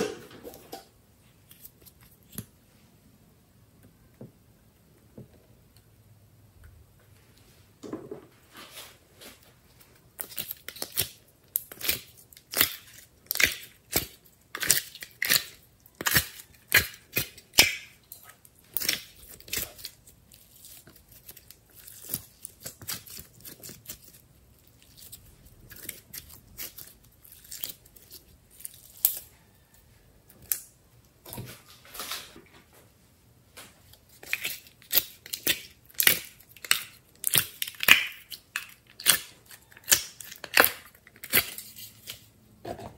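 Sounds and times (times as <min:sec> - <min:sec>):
slime crackling and popping: 0:10.2 - 0:18.0, 0:34.2 - 0:41.6.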